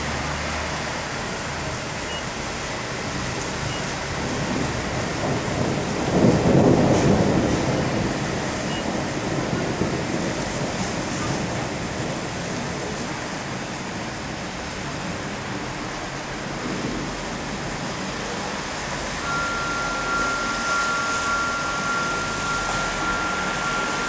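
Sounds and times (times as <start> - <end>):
rain: 0.0 - 24.0
wind: 0.0 - 24.0
steady high tone: 19.1 - 24.0.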